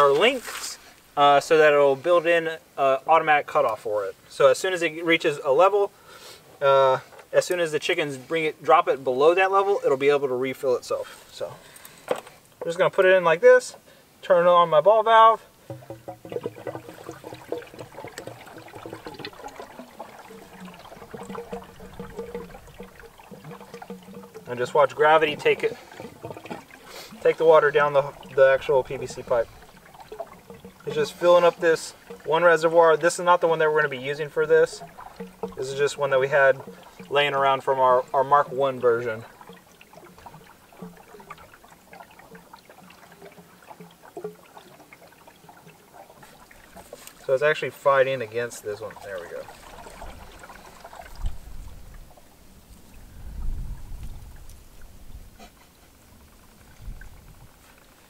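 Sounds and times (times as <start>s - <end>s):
water pouring into a trough: 15.3s - 52.2s
small pops and splashes: 15.6s - 47.3s, 48.1s - 52.0s.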